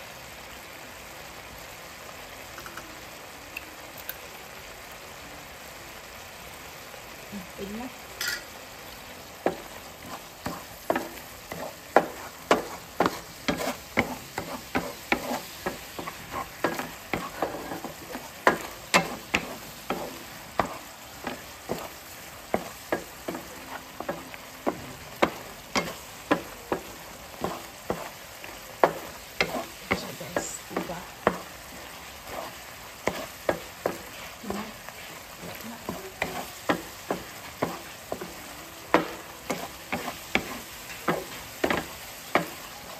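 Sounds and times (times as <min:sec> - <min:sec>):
sauce sizzling: 0:00.0 - 0:42.9
spatula scraping frying pan: 0:09.4 - 0:42.7.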